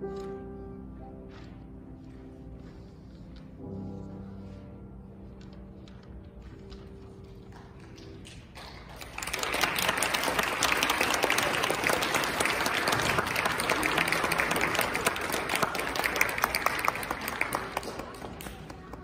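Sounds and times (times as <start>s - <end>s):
audience applause: 8.6s - 19.0s.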